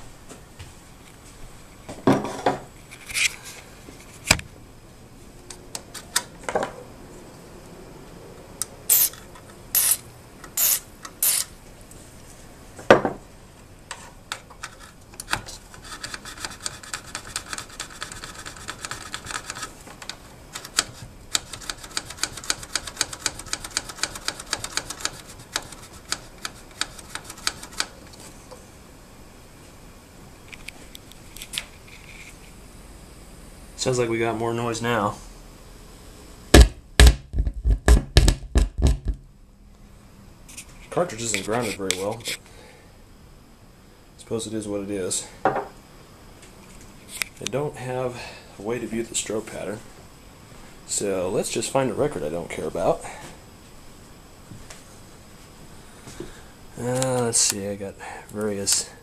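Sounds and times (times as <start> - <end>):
spray can hissing bursts: 8.9 - 10.0, 10.6 - 11.5.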